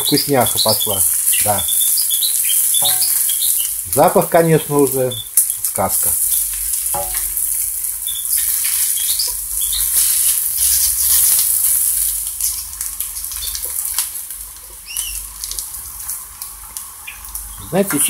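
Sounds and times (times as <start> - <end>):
potatoes sizzling in oil: 0.0 - 18.0
spatula scraping and tapping pan: 1.2 - 3.8, 6.2 - 11.6.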